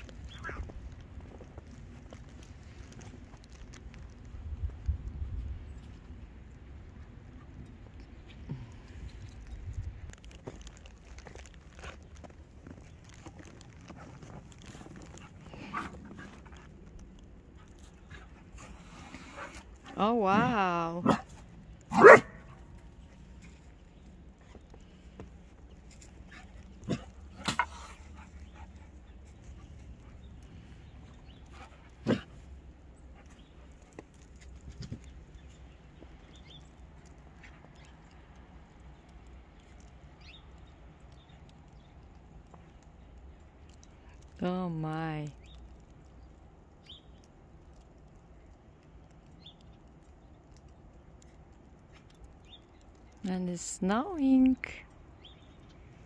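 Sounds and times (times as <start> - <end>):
faint outdoor background noise: 0.0 - 56.0
puppy barking: 21.9 - 22.4
soft ticks: 45.4 - 53.3
small bird chirping: 52.4 - 53.2.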